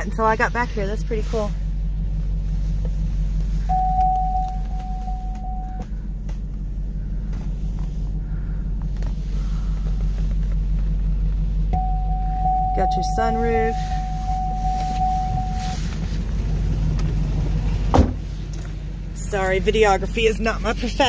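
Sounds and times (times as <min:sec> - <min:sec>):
engine idling: 0:00.0 - 0:21.0
steady high tone: 0:03.7 - 0:05.8, 0:11.8 - 0:15.8.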